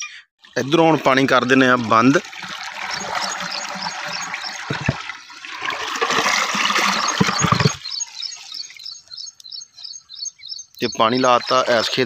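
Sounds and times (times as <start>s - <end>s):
water pouring through pipe: 0.4s - 8.9s, 11.1s - 12.0s
dull knocks of concrete plate: 4.7s - 5.0s, 7.2s - 7.8s.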